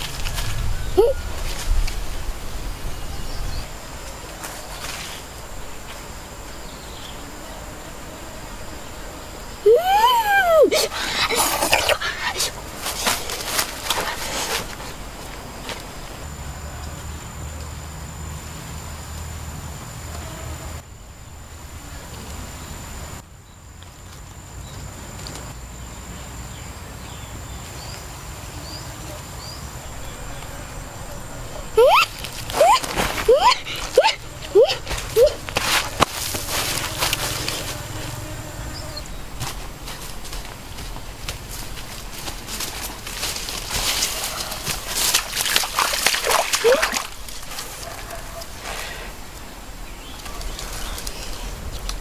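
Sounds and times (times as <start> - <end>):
high insect buzz: 0.0 - 23.6, 24.2 - 52.0
high-pitched insect drone: 28.6 - 39.3.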